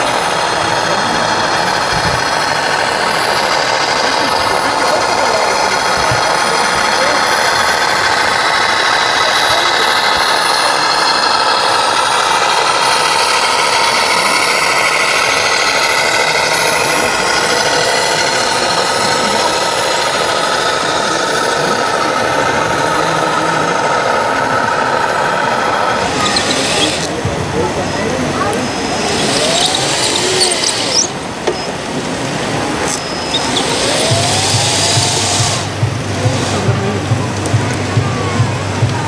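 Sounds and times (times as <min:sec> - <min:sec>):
model truck engine: 0:00.0 - 0:39.0.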